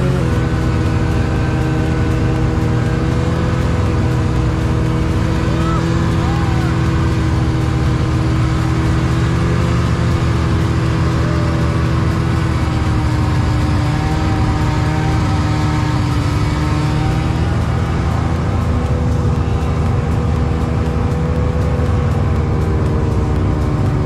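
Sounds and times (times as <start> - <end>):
snowmobile engine running: 0.0 - 24.0.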